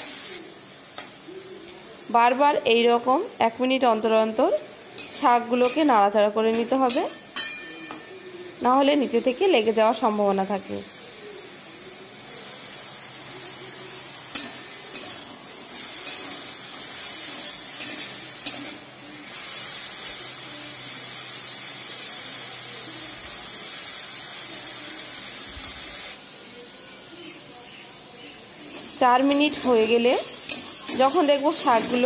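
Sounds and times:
greens sizzling in a pan: 0.0s - 32.0s
spatula scraping metal pan: 28.7s - 32.0s.

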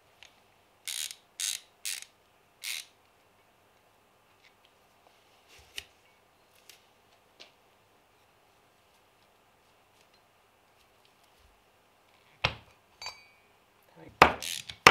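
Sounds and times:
socket ratchet clicking: 0.9s - 2.9s, 14.4s - 14.8s.

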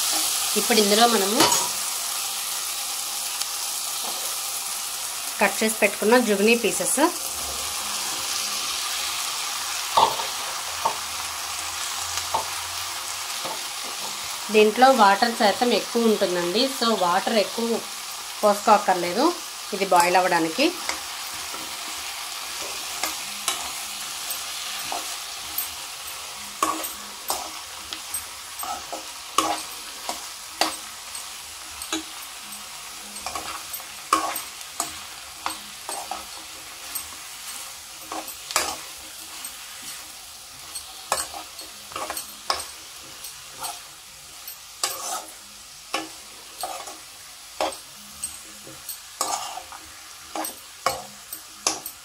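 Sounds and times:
vegetables sizzling in a pan: 0.0s - 52.0s
spatula scraping a pan: 19.9s - 52.0s.

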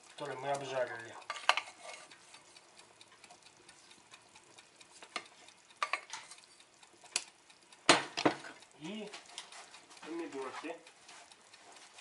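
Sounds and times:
spatula scraping a frying pan: 1.3s - 2.6s.

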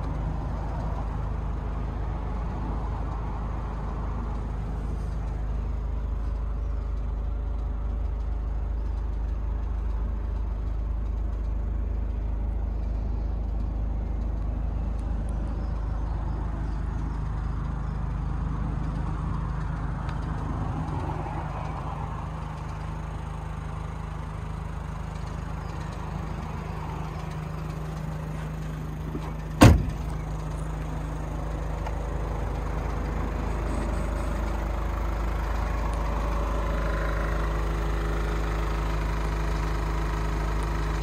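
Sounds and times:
van engine idling: 0.0s - 41.0s
door slam: 29.6s - 30.2s.

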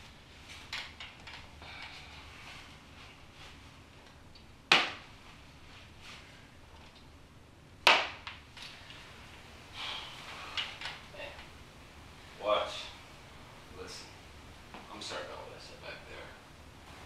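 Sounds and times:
soft rustling: 0.0s - 4.3s, 5.1s - 7.1s.

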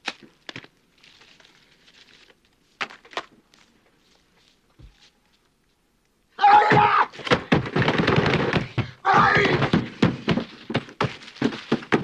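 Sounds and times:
man yelling: 6.4s - 7.1s, 9.0s - 9.7s.

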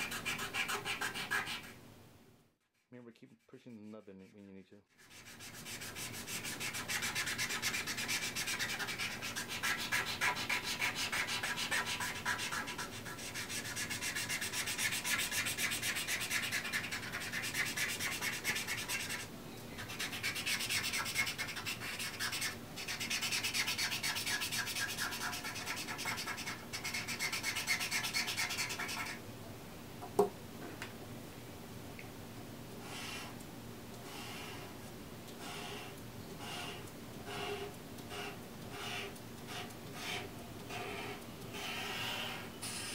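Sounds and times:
marker scrubbing on canvas: 0.0s - 1.8s, 2.8s - 29.2s.

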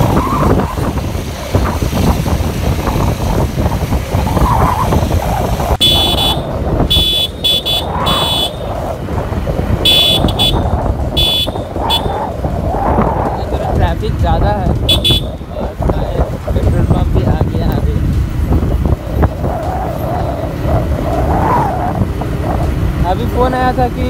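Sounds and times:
motorcycle engine: 0.0s - 24.0s
wind noise: 0.0s - 24.0s
high-pitched vehicle horn honks: 5.8s - 8.6s, 9.8s - 12.1s, 14.9s - 15.4s.

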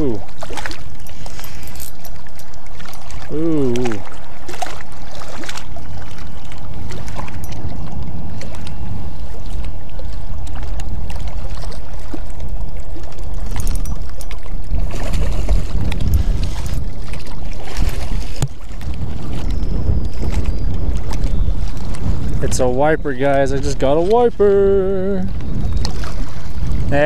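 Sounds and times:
fish splashing at surface: 0.0s - 6.2s
wind buffeting microphone: 0.0s - 27.0s.

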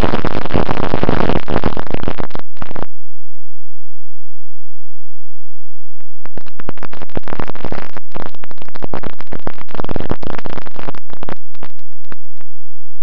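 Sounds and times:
distorted wind and airframe crackle: 0.0s - 3.0s, 6.0s - 13.0s.

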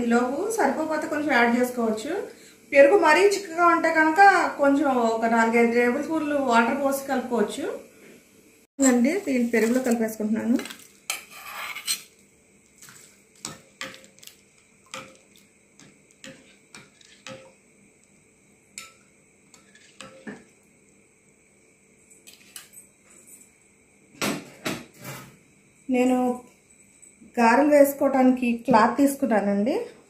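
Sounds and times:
spoon clinking against pan and bowl: 18.7s - 20.5s.

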